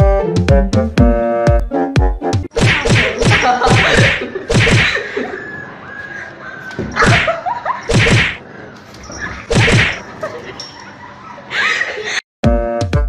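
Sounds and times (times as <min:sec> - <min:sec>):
kitten and puppy squabbling: 0:02.8 - 0:06.3.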